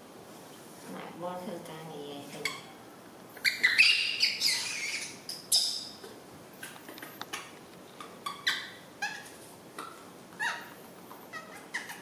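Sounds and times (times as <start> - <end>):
baby monkey squealing: 3.4 - 6.0, 8.0 - 10.7, 11.3 - 12.0
monkey chirps: 3.4 - 6.1, 8.0 - 10.7, 11.3 - 12.0.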